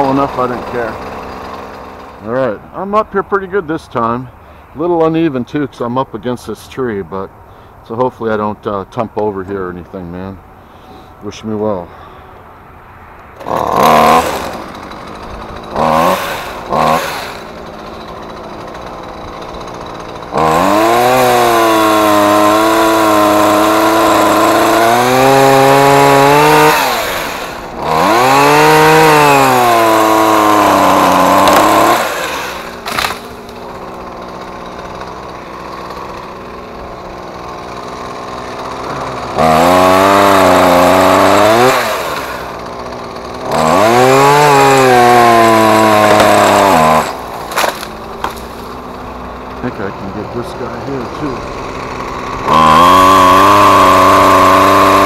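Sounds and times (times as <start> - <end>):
chainsaw cutting wood: 0.0 - 5.1, 13.2 - 55.0.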